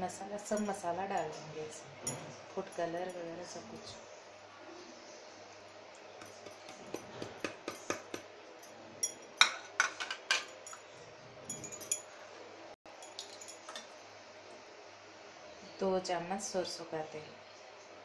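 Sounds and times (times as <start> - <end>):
spoons and dishes clinking: 6.2 - 10.9, 11.5 - 12.1, 13.0 - 13.9.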